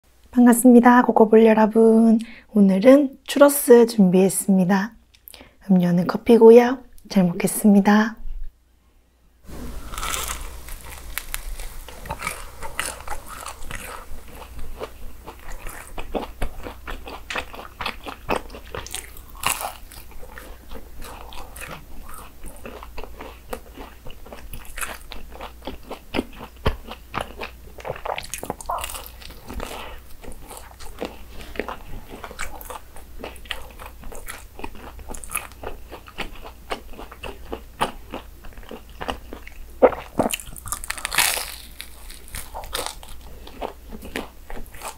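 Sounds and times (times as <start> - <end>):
person chewing crunchy food: 9.5 - 44.9.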